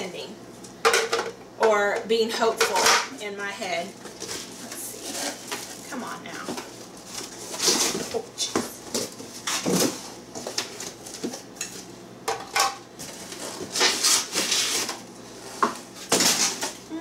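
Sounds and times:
plastic wrapping crinkling: 4.0s - 8.2s.

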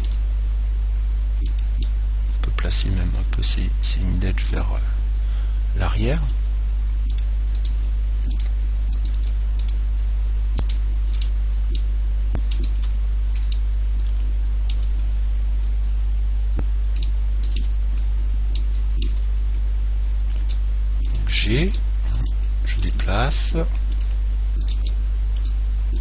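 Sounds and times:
low electrical hum: 0.0s - 26.0s
keyboard and mouse clicks: 1.4s - 2.6s, 7.0s - 9.8s, 10.6s - 15.0s, 17.0s - 19.2s, 23.9s - 26.0s.

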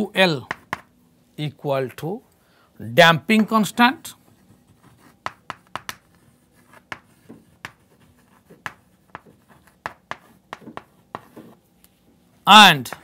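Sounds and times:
chalk tapping and scraping on chalkboard: 0.4s - 0.9s, 3.3s - 11.9s, 12.8s - 13.0s.

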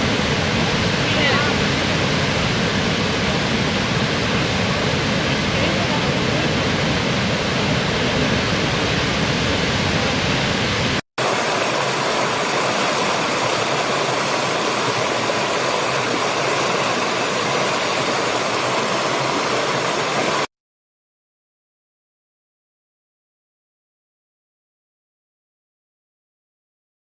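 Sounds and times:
large waterfall rushing: 0.0s - 20.5s
stream running over rocks: 11.2s - 20.5s.

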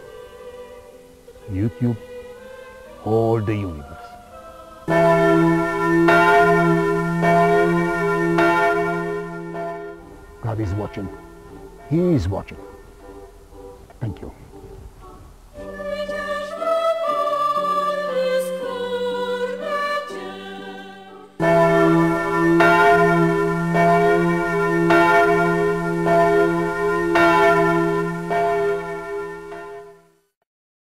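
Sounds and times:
slow music of held notes: 0.0s - 30.3s.

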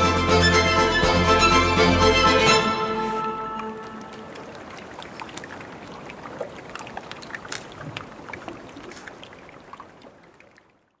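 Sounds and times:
water lapping: 2.6s - 11.0s
small clicks and pops: 6.8s - 8.1s.

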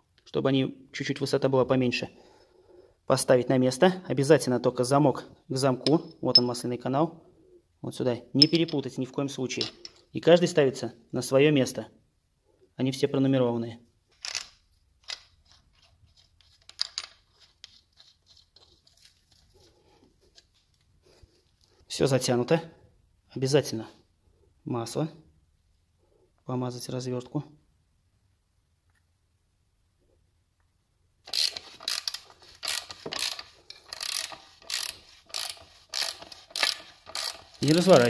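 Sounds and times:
wrench clicking on metal bolts: 31.3s - 38.0s.

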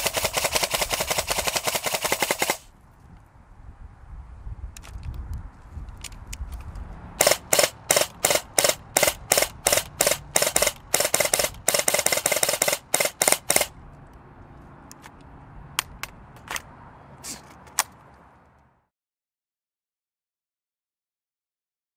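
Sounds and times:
airsoft gun firing: 0.0s - 2.7s, 7.2s - 13.7s.

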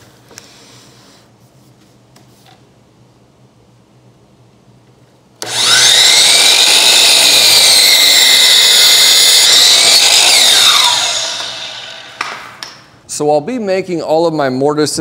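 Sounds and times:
miter saw motor whine: 5.4s - 12.2s
saw cutting wooden slats: 5.4s - 12.5s.

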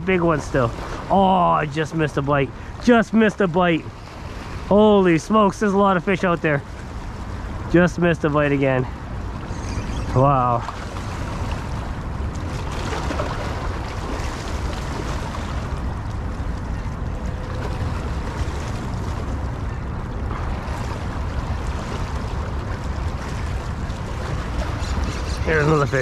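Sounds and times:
wind rumbling on microphone: 8.9s - 26.0s
river water washing on rocks: 10.2s - 26.0s.

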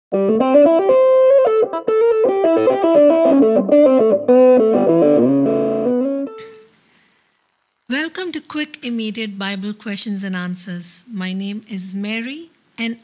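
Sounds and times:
plucked guitar music: 0.1s - 6.7s.

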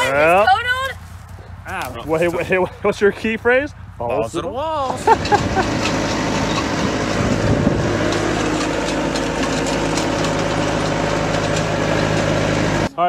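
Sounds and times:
engine idling: 4.8s - 13.0s.

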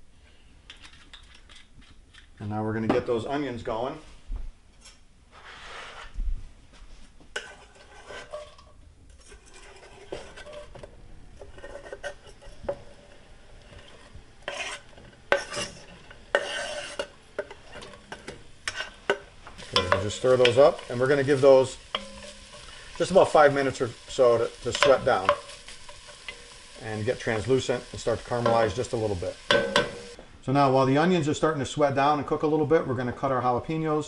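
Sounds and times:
knife scraping a cutting board: 7.4s - 8.6s, 9.2s - 10.7s, 13.7s - 17.1s, 18.7s - 19.0s
onion sizzling in oil: 11.4s - 30.2s.

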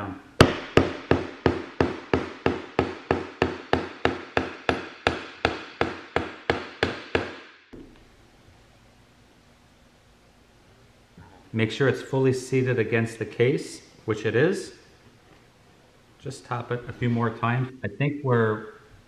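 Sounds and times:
hammer striking wooden block: 0.4s - 8.0s.

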